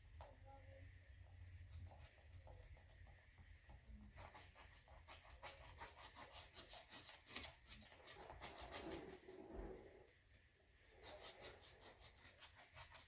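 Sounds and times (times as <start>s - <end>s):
hand cutter scratching: 4.2s - 9.3s, 10.9s - 13.0s.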